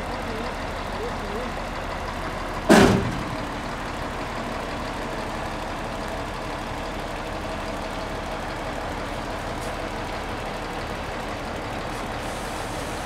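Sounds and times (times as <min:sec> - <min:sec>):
diesel engine running: 0:00.0 - 0:13.0
loud bang: 0:02.7 - 0:03.5.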